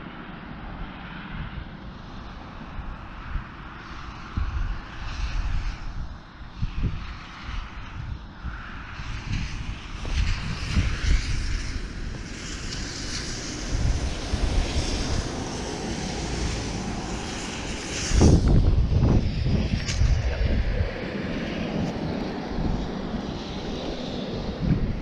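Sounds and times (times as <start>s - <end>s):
wind buffeting microphone: 0.7s - 25.0s
microphone handling noise: 18.2s - 21.0s.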